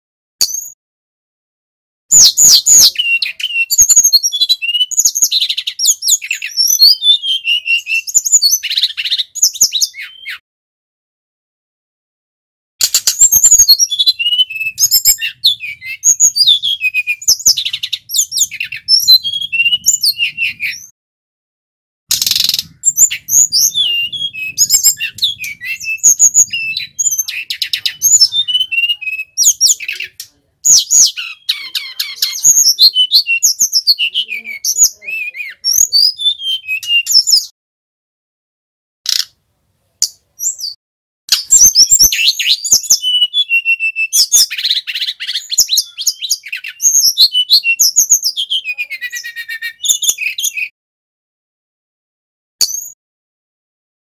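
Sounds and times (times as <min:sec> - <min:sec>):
bird singing chirps and whistles: 0:00.4 - 0:00.8, 0:02.1 - 0:10.4, 0:12.8 - 0:20.9, 0:22.1 - 0:37.5, 0:40.4 - 0:50.8, 0:52.6 - 0:53.0.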